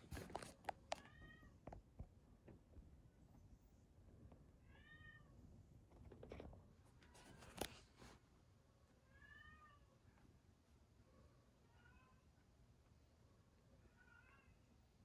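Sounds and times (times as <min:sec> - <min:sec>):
cat meowing softly: 0:01.0 - 0:01.6, 0:04.6 - 0:05.4, 0:09.0 - 0:10.1, 0:11.2 - 0:12.4, 0:13.8 - 0:14.7
faint rustling: 0:05.8 - 0:08.4.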